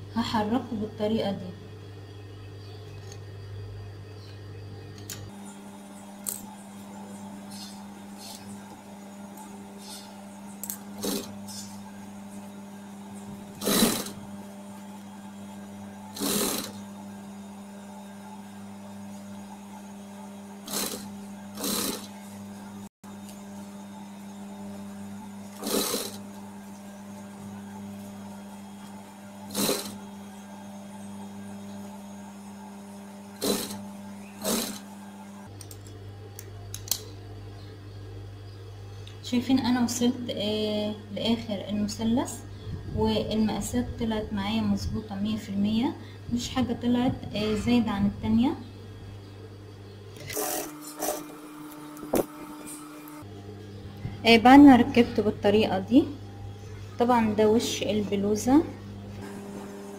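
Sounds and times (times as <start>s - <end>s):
steady low hum: 0.0s - 59.9s
sewing machine stitching: 11.0s - 11.6s, 13.5s - 14.2s, 16.1s - 16.8s, 20.6s - 22.2s, 25.5s - 26.3s, 29.4s - 30.0s, 33.4s - 34.9s, 50.2s - 51.3s.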